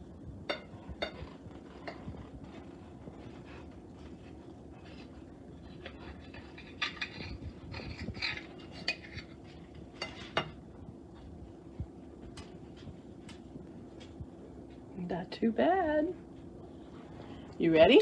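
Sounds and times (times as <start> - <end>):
steady low hum: 0.0 - 18.0
knife scraping a stoneware plate: 4.9 - 10.6.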